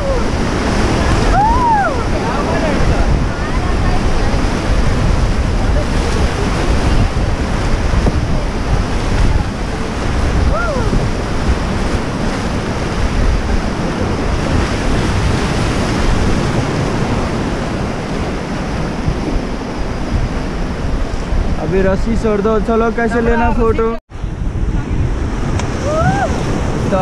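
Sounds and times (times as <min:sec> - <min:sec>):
whitewater rushing: 0:00.0 - 0:19.8
wind buffeting microphone: 0:00.0 - 0:27.0.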